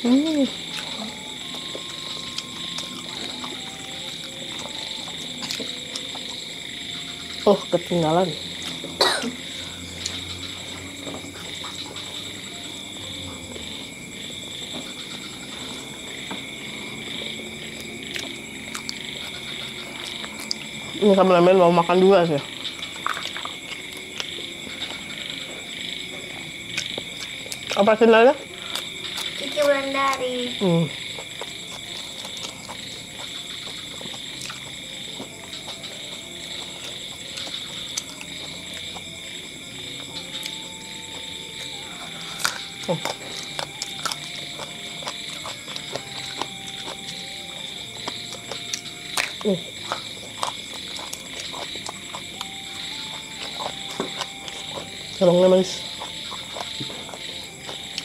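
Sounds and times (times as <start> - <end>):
person chewing food: 0.0 - 7.4, 8.4 - 21.1, 22.5 - 58.0
night chorus of trilling animals: 0.0 - 58.0
eating clicks and smacks: 17.8 - 20.9, 22.5 - 26.0, 26.6 - 27.9, 31.0 - 38.9, 41.6 - 55.2, 55.8 - 58.0.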